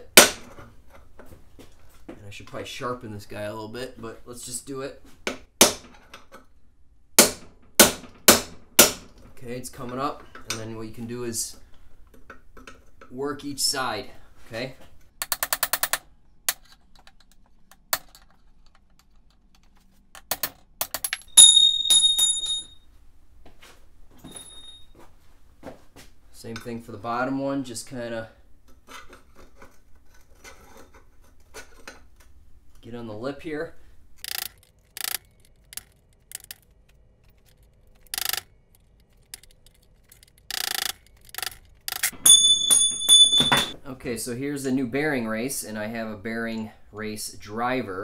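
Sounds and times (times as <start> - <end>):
ringing metallic clangs: 21.2 - 22.8, 24.3 - 24.9, 42.1 - 43.8.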